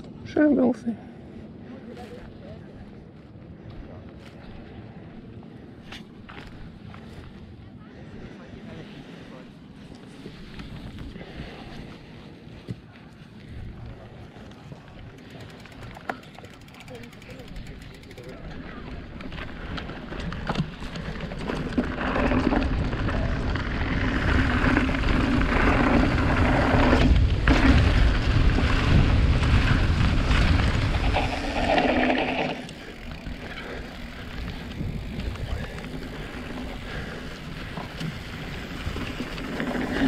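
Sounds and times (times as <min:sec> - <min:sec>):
tyres rumbling over ground: 0:14.8 - 0:40.0
wind buffeting microphone: 0:21.4 - 0:40.0.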